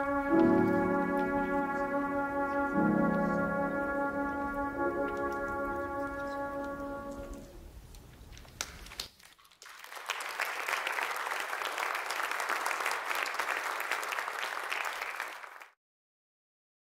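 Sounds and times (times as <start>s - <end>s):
audience applauding: 8.5s - 15.8s.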